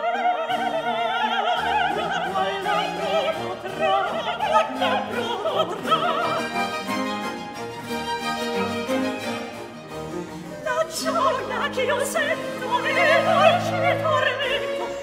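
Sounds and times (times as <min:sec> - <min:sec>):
operatic voice singing: 0:00.0 - 0:06.6, 0:10.0 - 0:15.0
orchestra with strings: 0:00.0 - 0:15.0.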